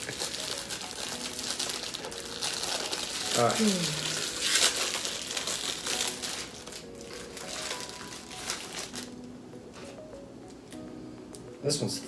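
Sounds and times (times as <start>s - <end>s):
foil pouch crinkling: 0.0s - 9.2s.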